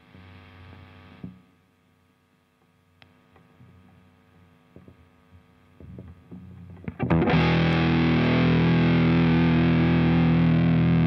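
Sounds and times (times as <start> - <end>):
distorted electric guitar chord: 6.9 - 11.0.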